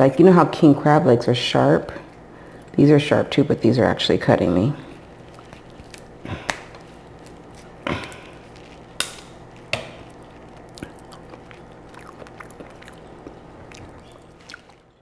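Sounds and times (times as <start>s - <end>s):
shell cracking and snapping: 5.0s - 14.8s.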